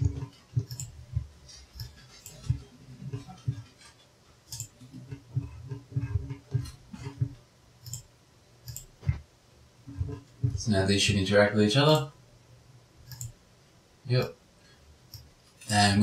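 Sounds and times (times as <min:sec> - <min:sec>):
computer mouse clicking: 0:00.0 - 0:03.8, 0:04.5 - 0:09.2, 0:13.0 - 0:13.4, 0:15.1 - 0:15.3
soft low bumps: 0:00.0 - 0:04.1, 0:04.8 - 0:07.5, 0:08.9 - 0:11.2.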